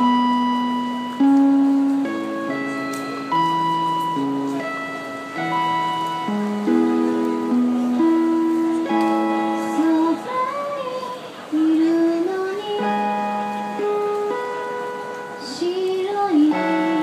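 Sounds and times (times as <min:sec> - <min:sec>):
sustained backing chords: 0:00.0 - 0:17.0
woman singing into microphone: 0:09.5 - 0:13.9, 0:15.4 - 0:17.0.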